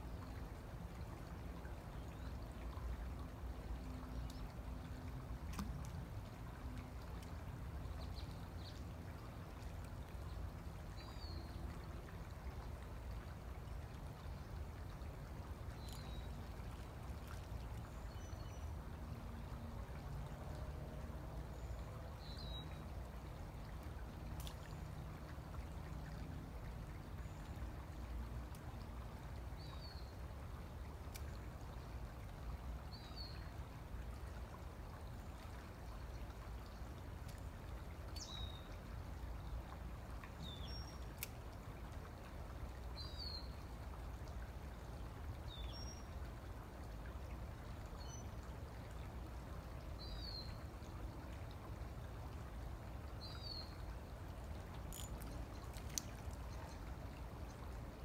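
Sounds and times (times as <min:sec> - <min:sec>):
low rush of background noise: 0:00.0 - 0:58.0
faint clicks: 0:54.8 - 0:56.8.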